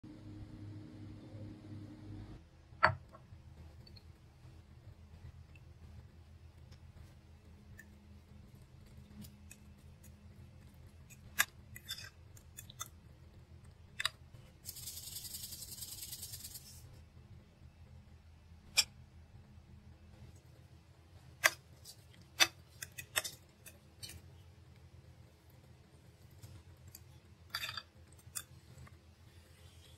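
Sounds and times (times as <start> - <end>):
salt shaker rattling: 14.6 - 16.8.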